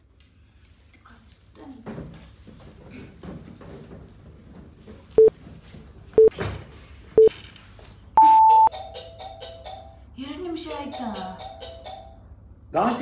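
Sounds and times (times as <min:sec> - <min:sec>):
timer long high beep: 0:08.2 - 0:08.7
timer short beeps: 0:08.2 - 0:08.7.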